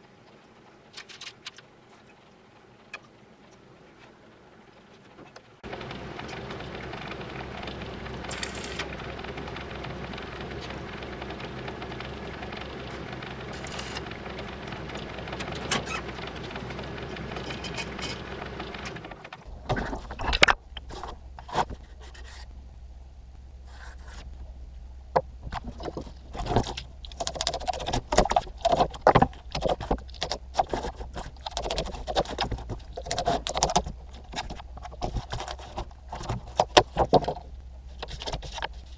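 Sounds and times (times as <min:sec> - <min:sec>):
steady scraping: 0:05.6 - 0:22.9, 0:23.6 - 0:38.9.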